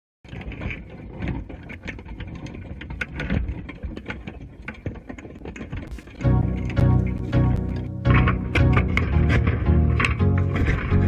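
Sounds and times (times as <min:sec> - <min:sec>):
clicks and knocks: 0:00.3 - 0:11.0
low underwater rumble: 0:05.9 - 0:11.0.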